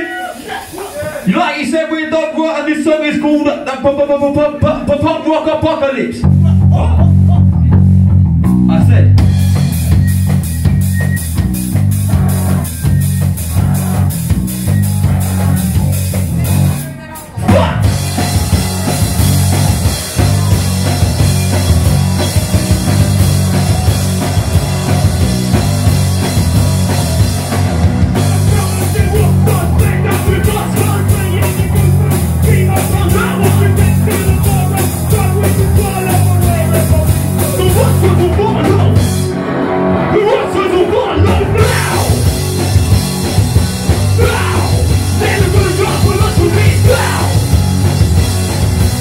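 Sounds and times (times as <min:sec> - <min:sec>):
rock band playing: 0:04.0 - 0:49.0
person shouting vocals: 0:40.4 - 0:42.2, 0:44.2 - 0:47.4.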